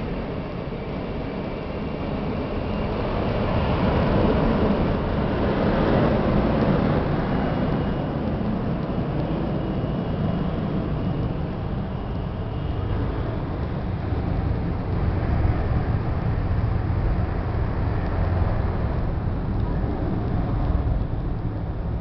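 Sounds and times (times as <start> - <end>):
high turbine whine: 0.0 - 22.0
jet engines running: 0.0 - 22.0.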